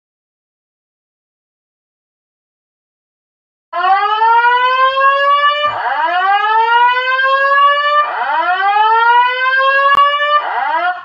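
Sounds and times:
fire alarm rising whoop: 3.8 - 11.0.

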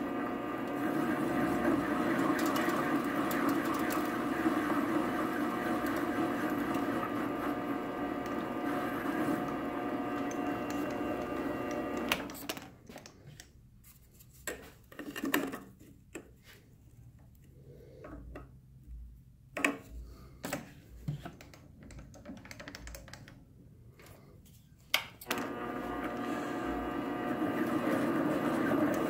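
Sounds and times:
small metal lathe running: 0.0 - 12.2, 25.4 - 29.0.

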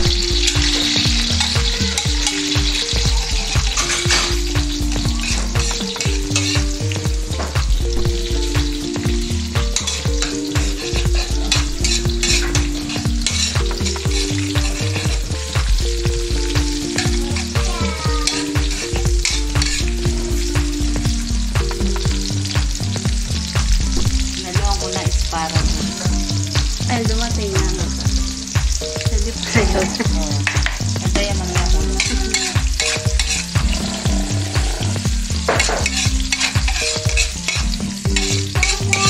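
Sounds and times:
background music with bass: 0.0 - 39.0
onions sizzling in hot oil: 0.0 - 39.0
metal spatula scraping a wok: 9.8 - 15.1, 32.3 - 38.9.

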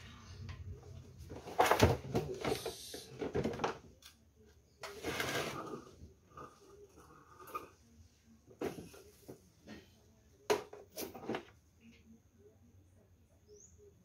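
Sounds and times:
plastic tank scraping on concrete: 4.8 - 6.0.

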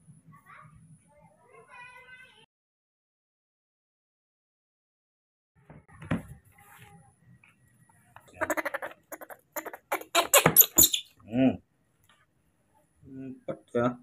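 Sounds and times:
baby monkey squeaking: 8.4 - 11.2.

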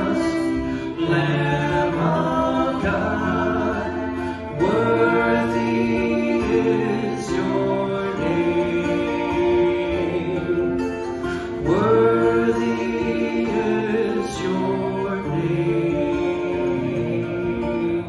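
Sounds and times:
woman singing backing vocal: 0.0 - 10.8
bowed violin: 0.0 - 18.0
man singing lead: 0.0 - 18.0
strummed acoustic guitar: 0.0 - 18.0.

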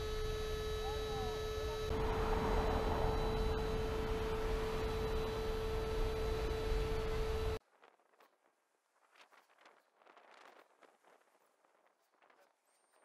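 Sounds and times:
electric air pump whining: 0.0 - 7.6.

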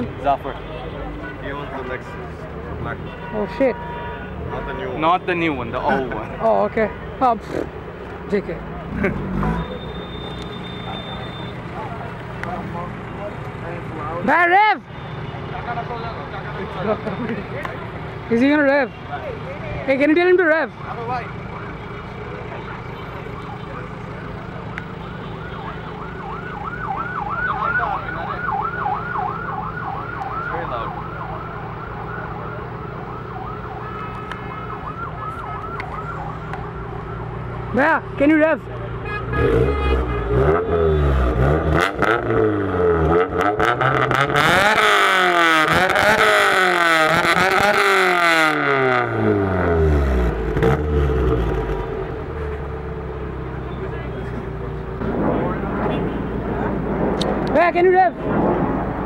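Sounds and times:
car engine revving: 8.4 - 9.9, 39.3 - 59.0
warbling siren: 25.3 - 38.3.

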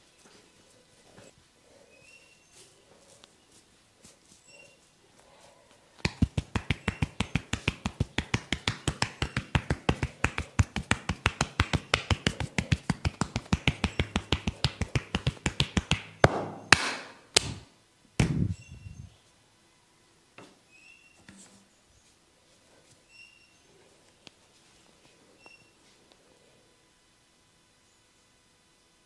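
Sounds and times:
rapid rhythmic tapping massage: 6.0 - 17.6
heavy slaps on body: 6.0 - 18.5.

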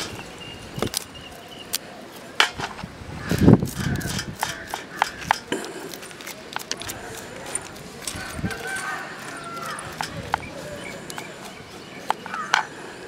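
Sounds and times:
knife scraping fish scales: 3.6 - 12.7.

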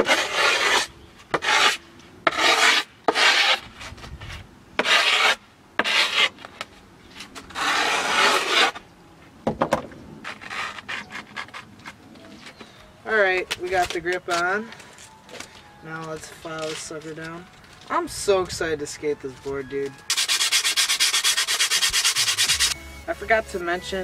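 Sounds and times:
metal file scraping board edge: 0.0 - 4.0, 4.8 - 6.5, 7.4 - 8.8, 10.2 - 12.0, 20.1 - 22.8.

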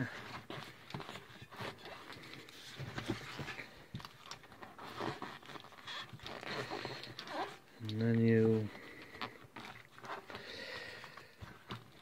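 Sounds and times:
rubber rubbing and scraping: 0.0 - 7.7.

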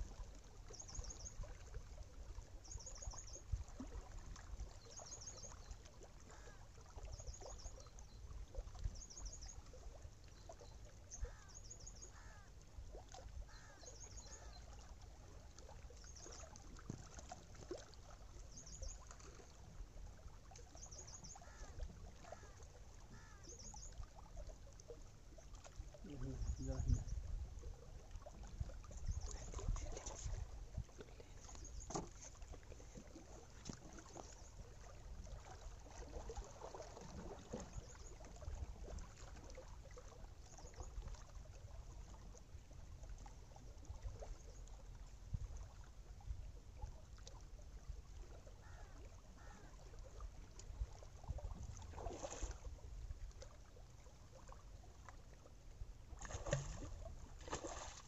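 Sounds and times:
small waves lapping on rocks: 48.4 - 58.0.

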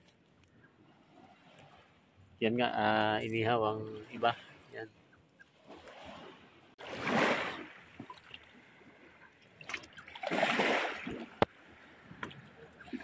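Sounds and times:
net swept through splashing water: 5.7 - 8.4, 9.6 - 11.4.

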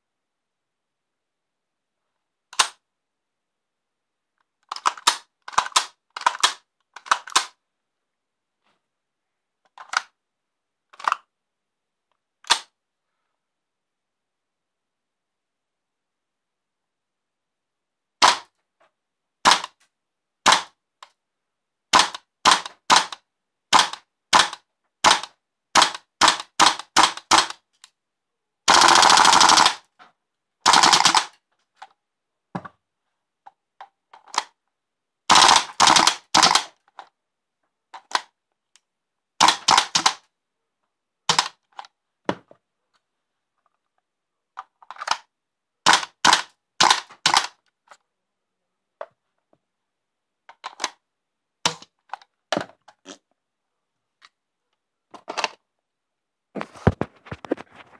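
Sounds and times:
airsoft rifle shots: 18.2 - 18.5, 19.4 - 19.7, 21.9 - 27.6, 28.7 - 29.8, 30.6 - 31.3, 35.3 - 36.7, 39.4 - 40.2.

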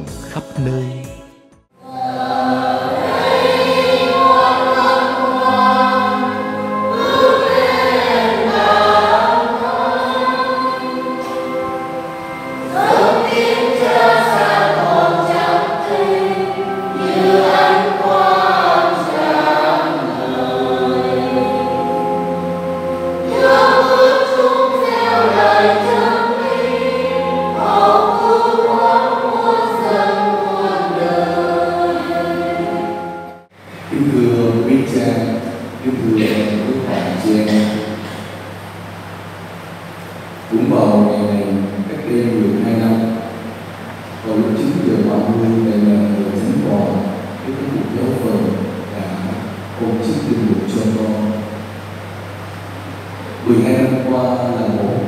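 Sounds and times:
choir singing a hymn: 1.8 - 39.0
held low accompanying notes: 1.8 - 55.0.

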